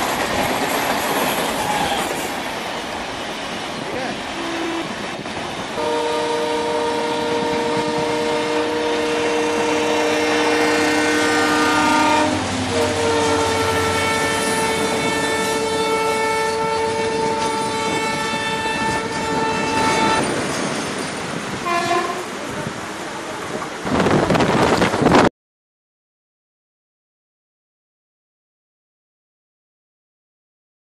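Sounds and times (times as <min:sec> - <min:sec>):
train horn blasts: 0:04.4 - 0:05.0, 0:05.8 - 0:20.2, 0:21.6 - 0:22.4.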